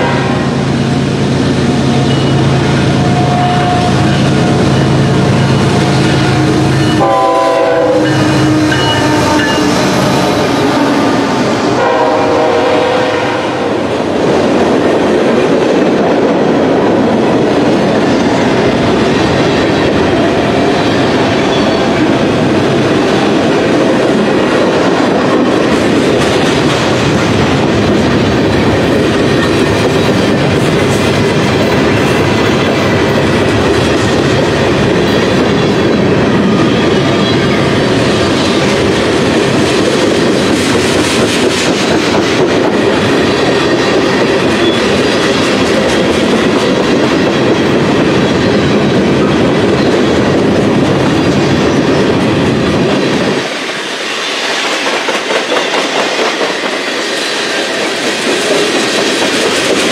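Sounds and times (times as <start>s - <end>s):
locomotive horn chord: 0.0s - 0.6s, 6.0s - 13.7s
train wheels rumbling: 0.0s - 59.9s.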